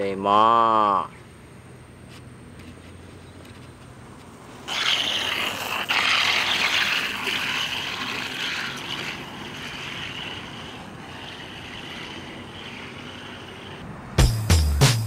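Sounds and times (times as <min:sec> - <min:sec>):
skateboard wheels screeching on concrete: 0:03.5 - 0:13.9.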